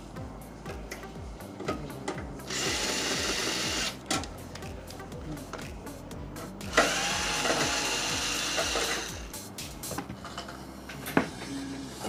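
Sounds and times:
electric screwdriver running: 0:02.5 - 0:04.0, 0:06.7 - 0:09.3.

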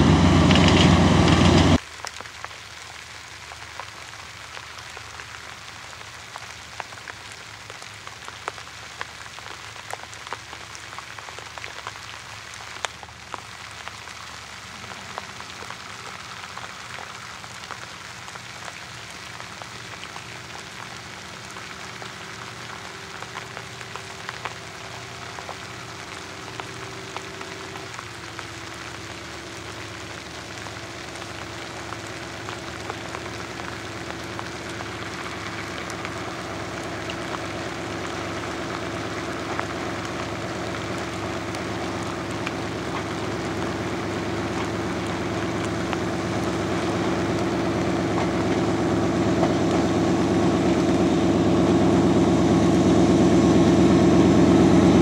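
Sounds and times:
diesel locomotive running: 0:00.0 - 0:01.8, 0:19.4 - 0:55.0
rain falling: 0:00.0 - 0:55.0.

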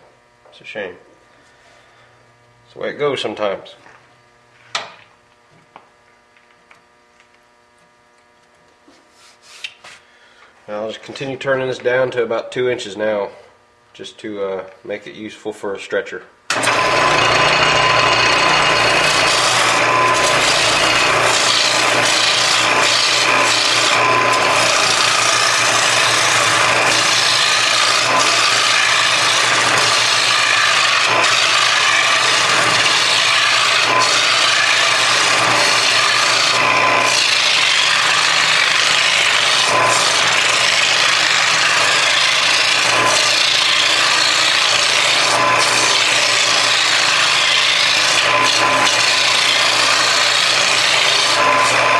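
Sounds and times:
gouge rasping on lathe wood: 0:16.5 - 0:51.9
lathe low hum: 0:16.5 - 0:51.9.

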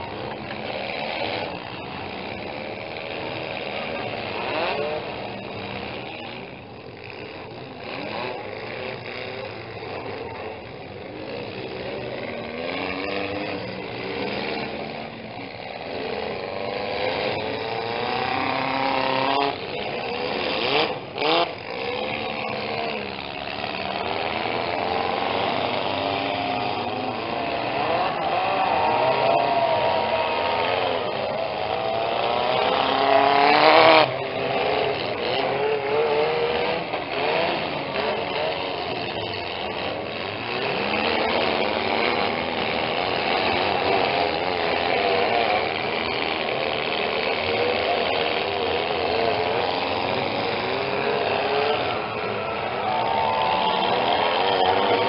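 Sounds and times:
car engines revving: 0:00.0 - 0:55.0.

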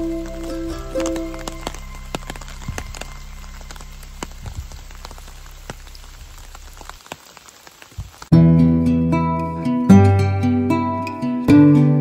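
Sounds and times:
raindrops tapping on leaves: 0:00.0 - 0:08.4
rain falling in forest: 0:00.0 - 0:12.0.

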